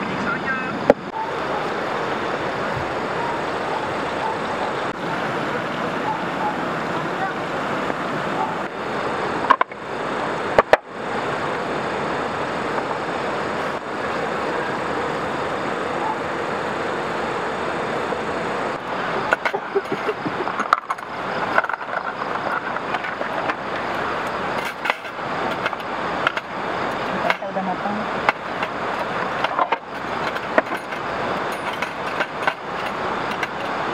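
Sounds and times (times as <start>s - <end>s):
river flowing over waterfall: 0.0s - 33.9s
utensils clinking on pan and plates: 19.2s - 27.6s, 28.3s - 33.9s.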